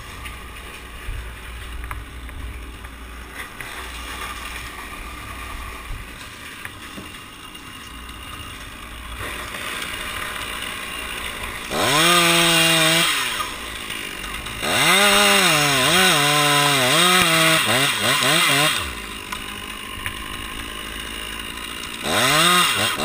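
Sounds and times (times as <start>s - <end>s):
chainsaw cutting wood: 2.6s - 23.0s.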